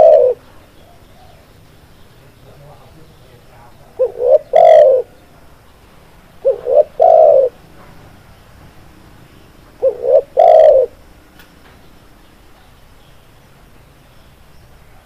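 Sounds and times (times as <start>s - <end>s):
dove cooing: 0.0s - 1.5s, 3.6s - 5.3s, 6.4s - 7.6s, 9.8s - 11.1s.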